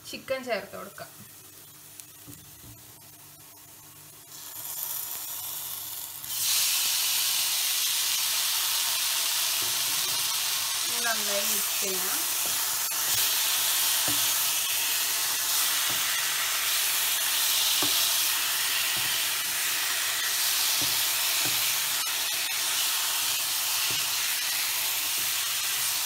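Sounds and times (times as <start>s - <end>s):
chicken sizzling in hot oil: 1.3s - 26.0s
wooden spatula knocking in pan: 17.8s - 18.1s, 18.9s - 19.3s, 20.7s - 21.8s.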